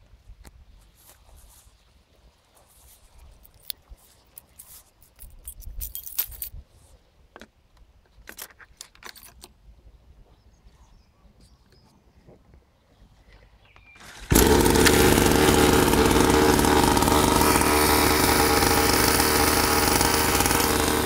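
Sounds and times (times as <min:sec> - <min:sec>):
keys jingling and clicking: 0:04.4 - 0:06.6, 0:08.3 - 0:09.5.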